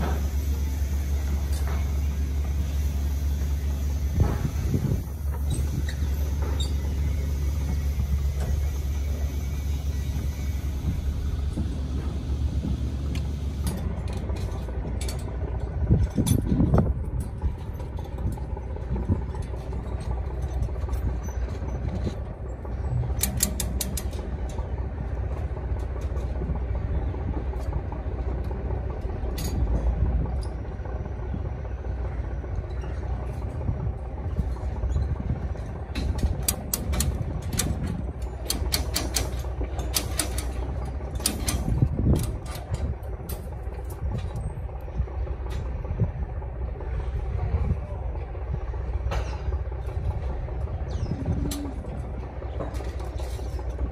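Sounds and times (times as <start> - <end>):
steady low rumble: 0.0 - 53.9
metallic clicks of wire on rebar: 23.1 - 24.7, 35.9 - 44.9.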